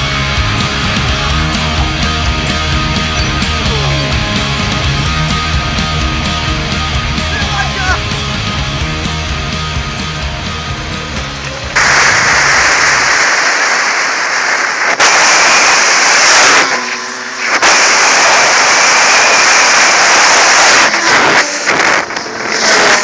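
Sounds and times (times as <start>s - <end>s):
motorcycle engine running: 0.0s - 13.2s.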